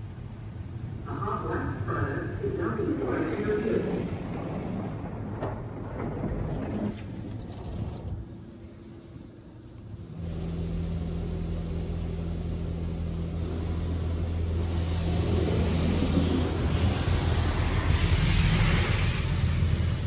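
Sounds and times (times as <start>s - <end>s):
water spraying on car: 3.1s - 8.9s, 10.1s - 20.0s
low machine hum: 8.0s - 20.0s.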